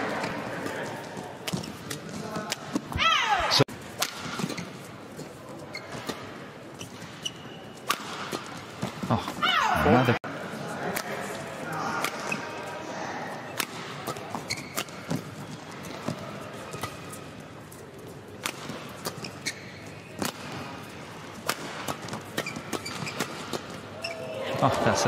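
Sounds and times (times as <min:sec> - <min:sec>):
court shoes squeaking: 0:00.0 - 0:10.2, 0:11.0 - 0:24.7
indoor arena hum: 0:00.0 - 0:25.0
rackets striking shuttlecock: 0:07.8 - 0:08.9, 0:21.4 - 0:23.8.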